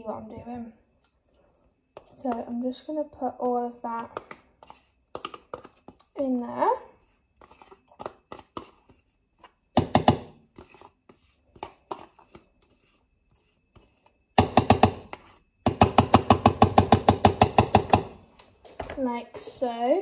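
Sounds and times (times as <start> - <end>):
pot knocking on blender: 9.8 - 10.3, 14.4 - 18.1.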